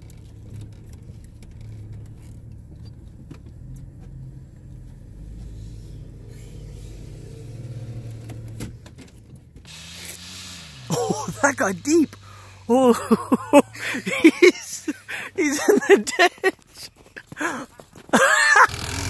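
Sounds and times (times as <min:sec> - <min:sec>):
engine running under load: 0:00.1 - 0:16.5, 0:17.2 - 0:19.0
hiss: 0:09.7 - 0:12.7.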